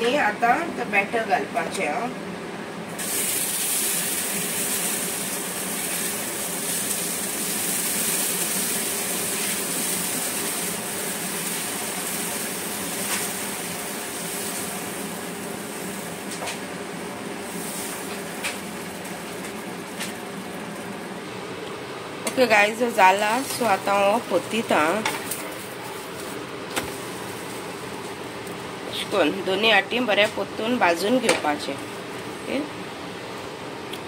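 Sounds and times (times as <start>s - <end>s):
batter sizzling on hot griddle: 2.9s - 21.4s.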